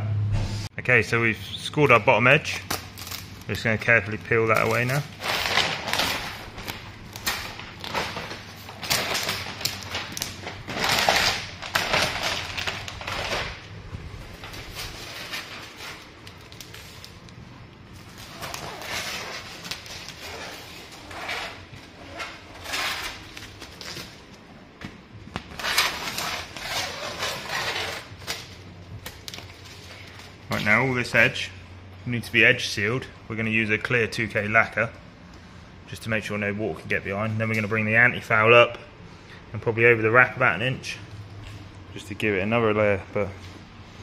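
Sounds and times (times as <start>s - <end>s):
vinyl wrap being peeled: 2.5s - 24.5s, 25.3s - 30.6s.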